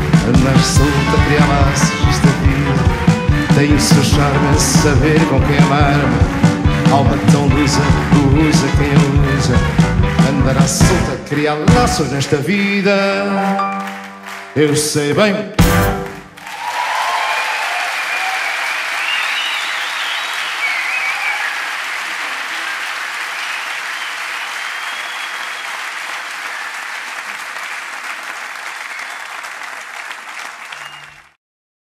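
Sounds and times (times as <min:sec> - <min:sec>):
audience applauding: 0:00.0 - 0:12.4, 0:13.3 - 0:31.4
audience cheering: 0:15.6 - 0:31.4
whistles: 0:18.1 - 0:21.7, 0:23.3 - 0:25.9, 0:28.8 - 0:29.4, 0:30.6 - 0:31.3.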